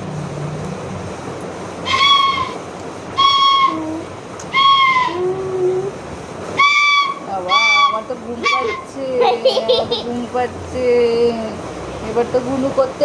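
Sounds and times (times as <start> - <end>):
shrill bamboo flute notes: 1.8 - 2.6, 3.2 - 5.4, 6.6 - 8.9.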